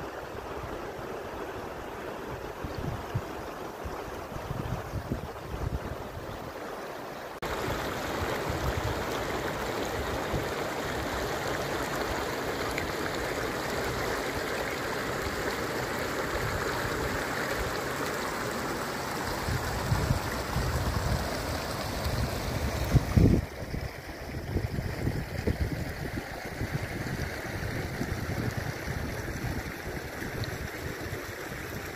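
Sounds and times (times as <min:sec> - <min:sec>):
stream rushing over stones: 0:00.0 - 0:31.9.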